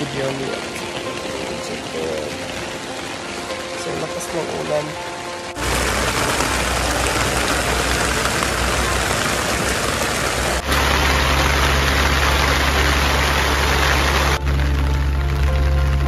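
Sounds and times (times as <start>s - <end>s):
heavy rain pouring: 0.0s - 16.0s
constant low rumble: 5.6s - 16.0s.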